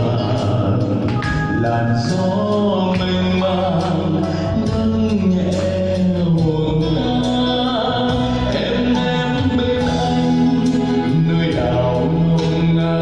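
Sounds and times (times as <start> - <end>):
backing track music: 0.0 - 13.0
man singing into microphone: 0.0 - 13.0.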